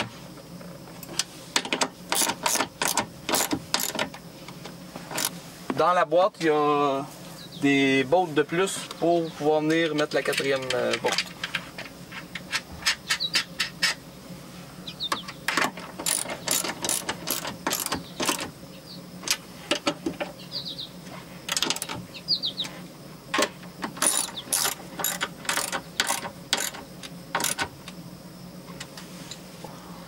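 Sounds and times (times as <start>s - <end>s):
ratchet wrench clicking: 2.1s - 4.1s, 16.0s - 18.4s, 24.0s - 26.8s.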